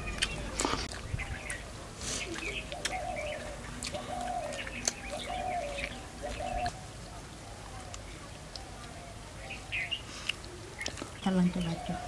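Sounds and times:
bird chirps: 0.0 - 6.8
bird cooing: 2.2 - 7.9.

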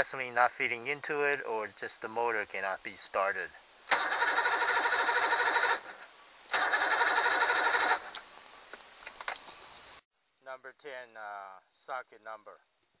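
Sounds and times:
outboard motor cranking: 3.9 - 5.8, 6.5 - 8.0.

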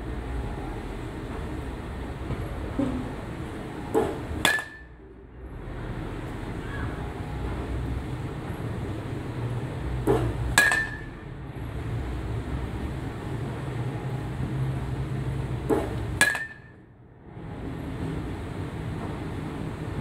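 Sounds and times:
steady low hum: 0.0 - 20.0
bat hitting ball: 3.9 - 5.0, 10.0 - 11.2, 15.7 - 16.8.

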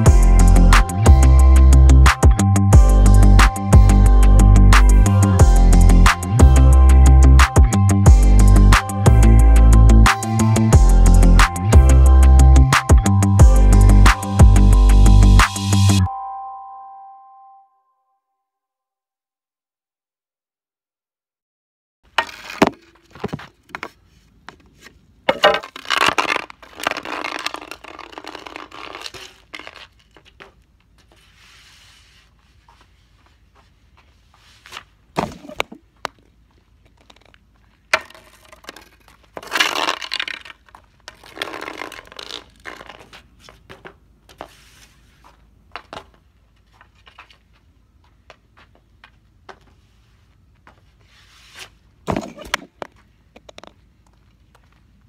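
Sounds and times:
stick striking pucks: 22.1 - 30.6, 36.9 - 43.8
hockey pucks scraping on asphalt: 22.1 - 47.7, 49.5 - 54.7.

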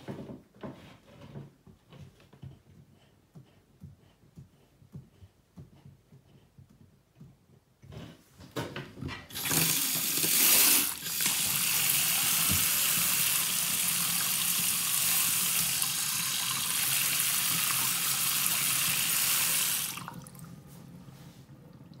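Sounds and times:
tap water running into basin: 9.3 - 20.6.

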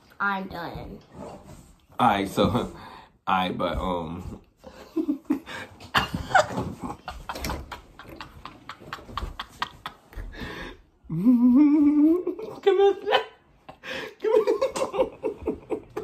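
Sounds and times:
man laughing hard: 5.0 - 10.2.

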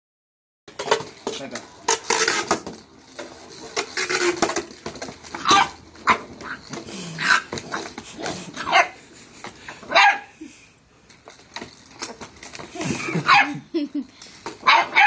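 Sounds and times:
spinning top clattering in plastic bowl: 0.7 - 8.2.

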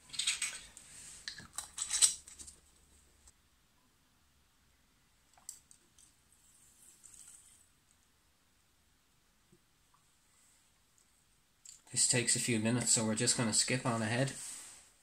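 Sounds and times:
plastic items clicking and knocking: 0.0 - 2.6.

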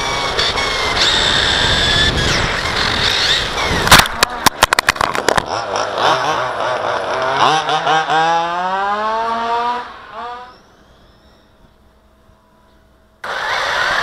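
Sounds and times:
rc car motor whine: 0.0 - 7.1, 10.4 - 11.6, 13.2 - 14.0
rc car running over tarmac: 0.0 - 8.6.

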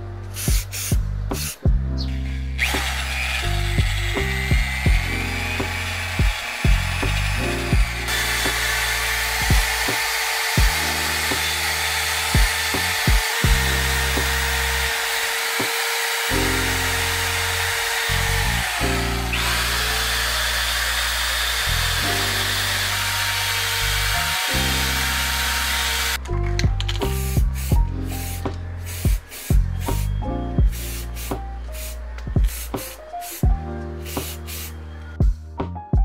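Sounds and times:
lofi music with steady beat: 0.0 - 2.0, 2.6 - 17.2, 26.2 - 36.0
drill wire brush grinding metal: 0.4 - 26.2.

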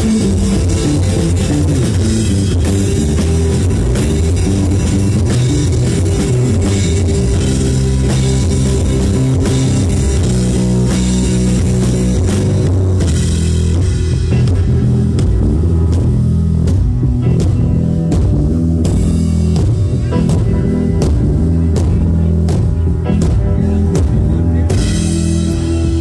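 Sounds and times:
electric bass guitar: 0.0 - 26.0
rock band playing: 0.0 - 26.0.

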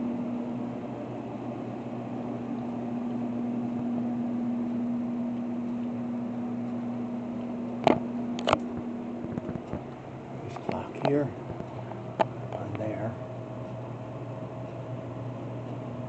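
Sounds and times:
electrical hum with fan hiss: 0.0 - 16.0
sharp clicks: 7.4 - 10.0.

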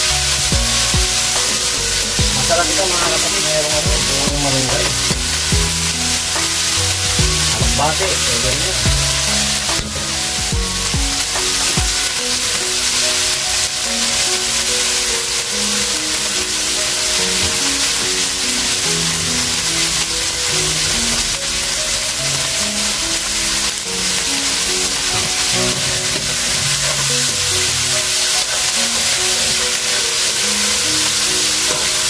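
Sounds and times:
music with a beat: 0.0 - 13.9
onion and potato sizzling in wok: 0.0 - 32.0.

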